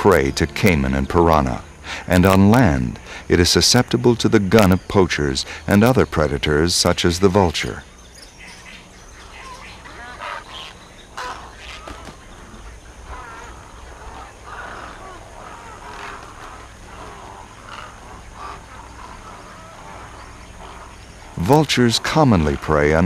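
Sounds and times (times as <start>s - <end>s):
low steady hum: 0.0s - 23.0s
bird-like animal calls: 7.3s - 23.0s.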